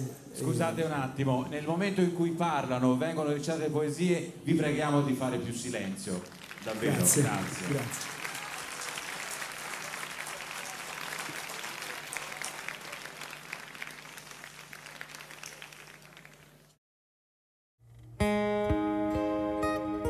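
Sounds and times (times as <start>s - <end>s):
audience applause: 6.1s - 16.8s
acoustic guitar picked notes: 17.8s - 20.0s.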